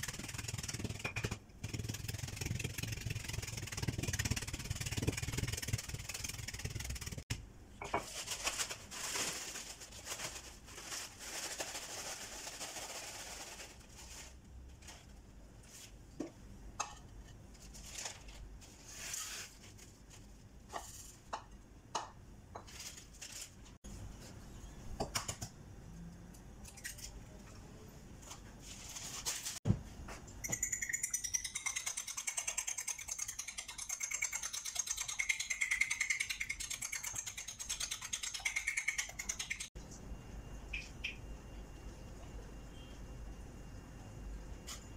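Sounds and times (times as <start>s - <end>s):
fork beating eggs on plate: 30.4s - 39.8s.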